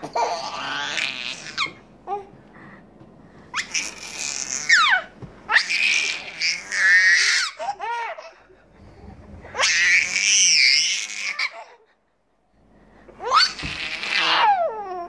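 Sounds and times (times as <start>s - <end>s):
baby squealing with laughter: 3.5s - 8.2s, 9.6s - 11.7s, 13.2s - 15.0s.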